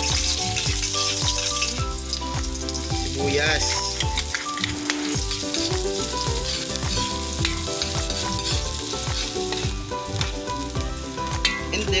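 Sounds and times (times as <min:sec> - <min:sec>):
garlic and onion sizzling in oil: 0:00.0 - 0:12.0
metal spatula scraping a wok: 0:03.7 - 0:09.7.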